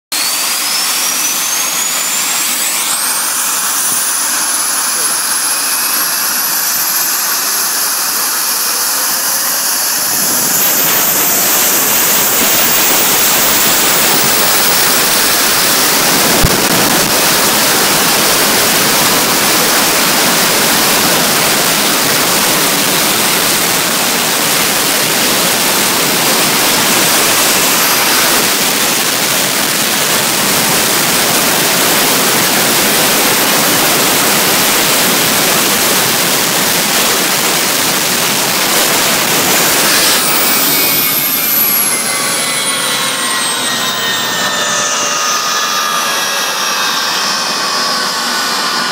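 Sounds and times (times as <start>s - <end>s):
high whine: 0.1s - 48.9s
jet engine running: 0.1s - 48.9s.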